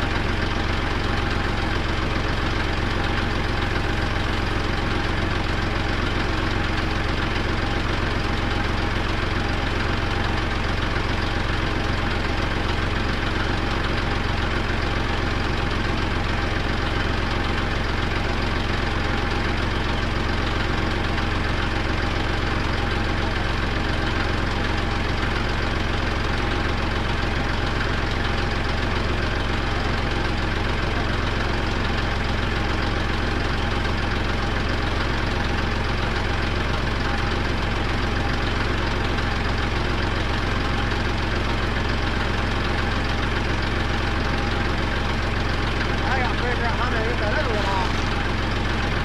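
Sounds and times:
diesel tractor engine idling: 0.0 - 49.0.

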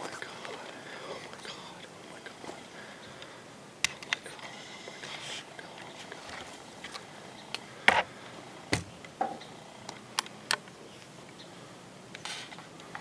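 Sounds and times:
rustle: 0.0 - 13.0
handling thump: 8.7 - 9.4.

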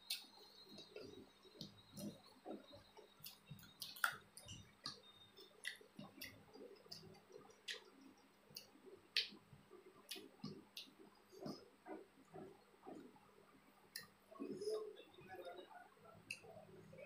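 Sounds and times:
lip smacks: 0.1 - 8.0
wet chewing: 0.1 - 9.3.

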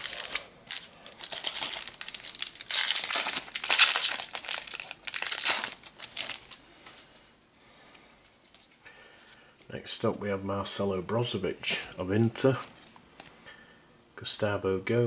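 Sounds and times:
foil wrapper crinkling and tearing: 0.0 - 6.6.

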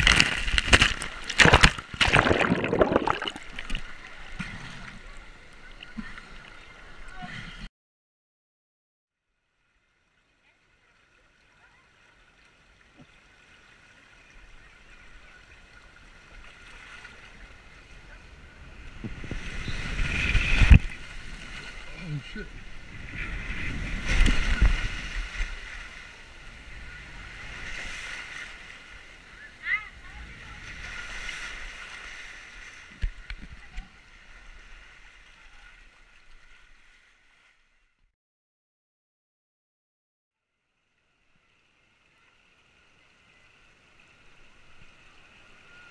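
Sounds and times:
water rushing under inflatable tube: 0.0 - 7.7, 10.4 - 37.3.

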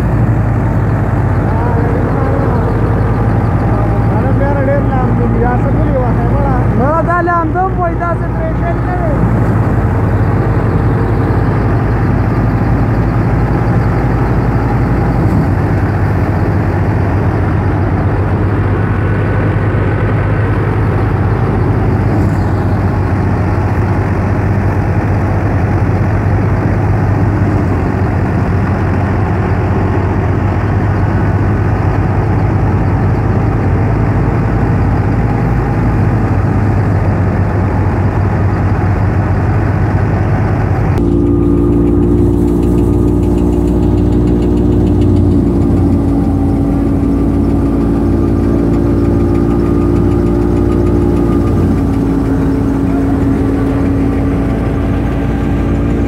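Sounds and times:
smooth hum with steady tones: 0.0 - 25.2, 41.0 - 56.0
threshing machine running: 0.0 - 56.0.

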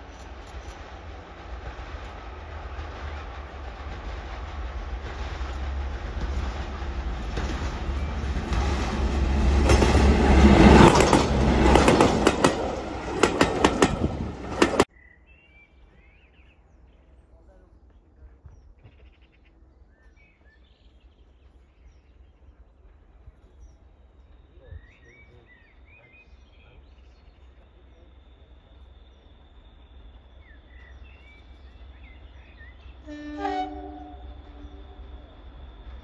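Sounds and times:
diesel locomotive rumble: 0.0 - 14.9, 27.5 - 36.0
birds singing: 7.5 - 35.4
locomotive horn blast: 33.0 - 35.2.

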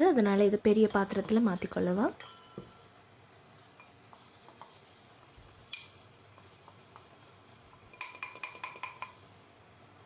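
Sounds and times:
cup knocking on steel bowl: 8.0 - 9.2.

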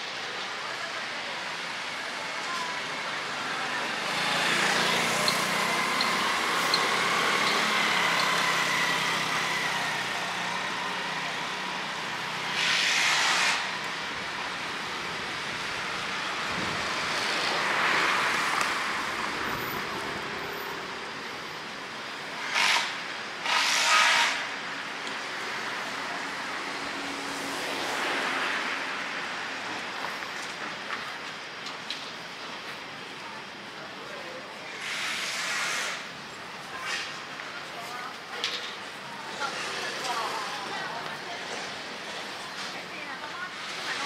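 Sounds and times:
road traffic passing: 0.0 - 44.0
loud hissing bursts: 34.7 - 36.2.

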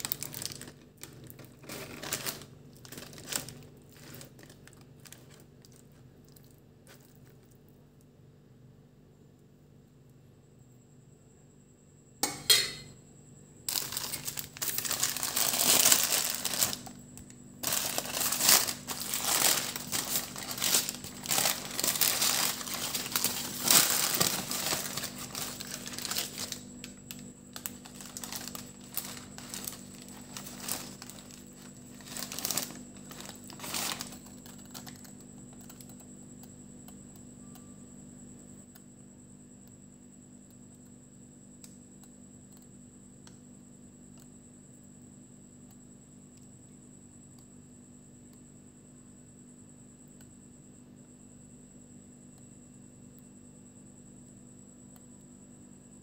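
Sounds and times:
paper wrapper crinkling: 0.0 - 7.6, 13.7 - 35.8.

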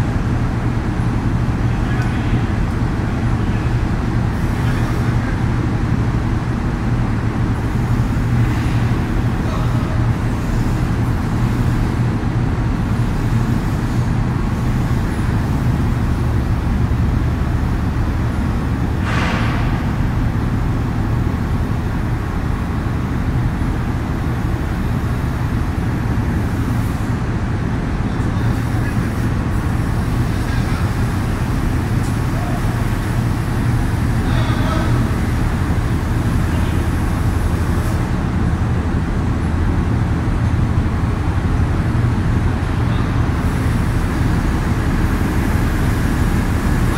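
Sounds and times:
excavator diesel engine running: 0.0 - 46.9.

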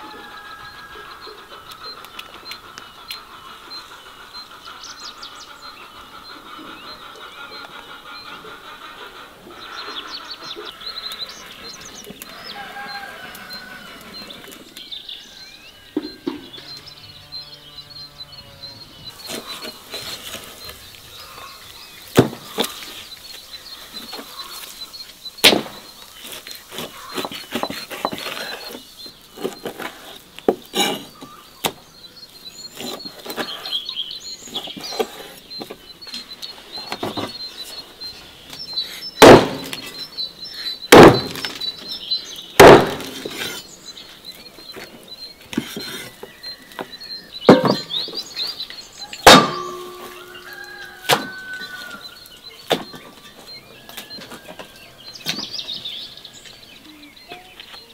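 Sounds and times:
birds chirping: 0.0 - 57.9.

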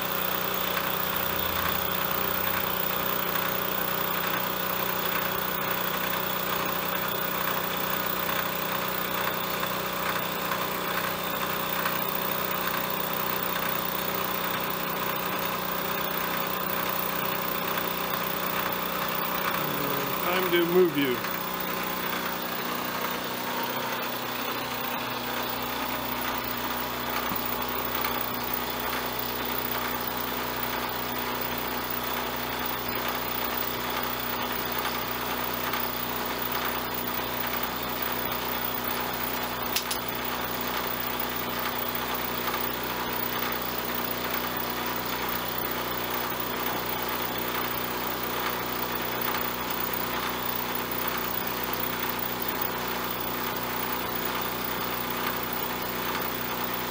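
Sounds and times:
milling machine motor hum: 0.0 - 56.9
end mill cutting aluminium: 18.4 - 28.2.

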